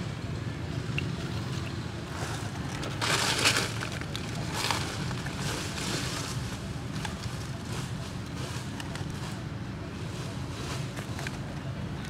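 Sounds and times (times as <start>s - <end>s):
dry leaves crackling and rustling: 2.0s - 11.6s.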